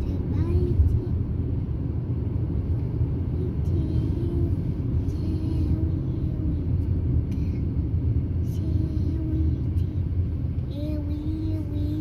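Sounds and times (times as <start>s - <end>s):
car interior rumble: 0.0s - 12.0s.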